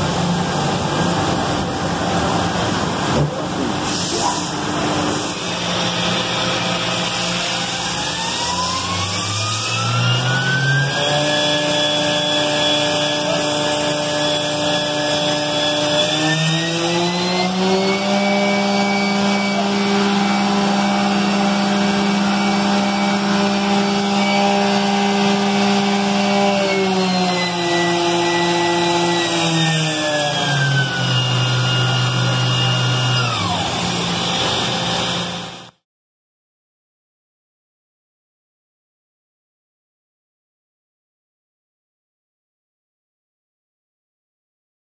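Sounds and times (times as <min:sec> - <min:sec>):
mill spindle motor whine: 0:04.5 - 0:35.7.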